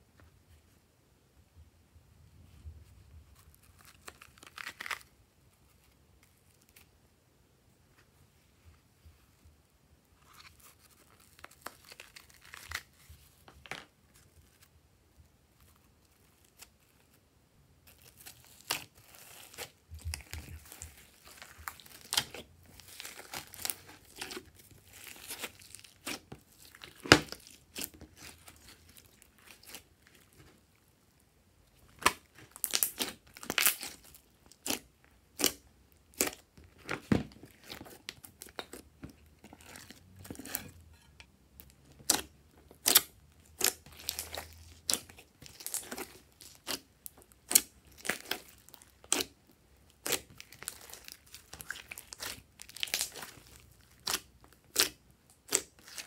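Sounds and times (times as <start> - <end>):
slime crackling and popping: 17.9 - 30.5, 31.8 - 56.0.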